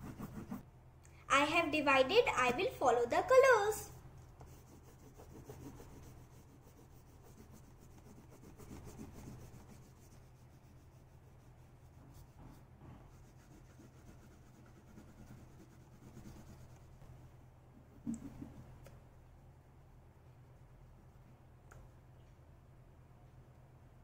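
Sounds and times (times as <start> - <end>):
oil pastel rubbing on paper: 0.0 - 0.6, 4.2 - 17.0
steady low hum: 0.0 - 24.0.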